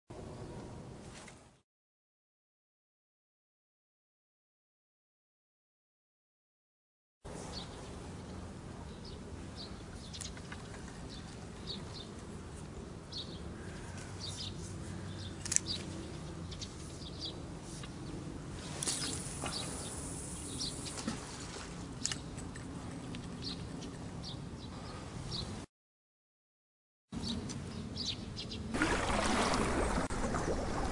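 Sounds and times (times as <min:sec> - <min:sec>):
low outdoor hum: 0:00.1 - 0:01.6, 0:07.3 - 0:25.7
rustle: 0:00.4 - 0:01.6, 0:07.3 - 0:24.1
small birds chirping: 0:08.8 - 0:12.2, 0:13.1 - 0:18.2, 0:18.8 - 0:21.2, 0:22.0 - 0:25.6, 0:27.2 - 0:28.7.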